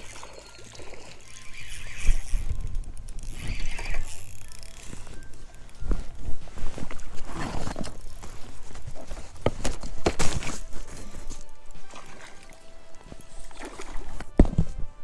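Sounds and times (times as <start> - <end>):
background music: 7.5 - 15.0
water splashing against float tube: 11.8 - 14.4.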